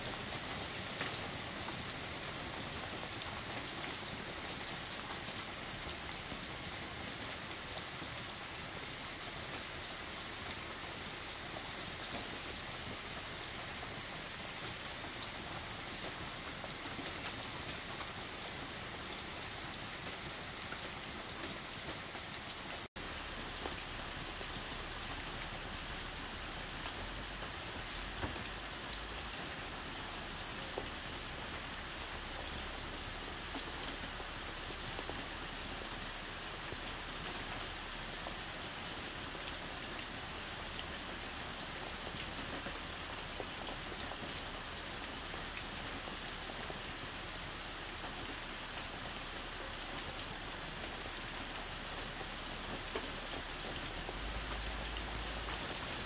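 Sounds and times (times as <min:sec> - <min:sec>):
heavy rain on a camper: 0:00.0 - 0:56.0.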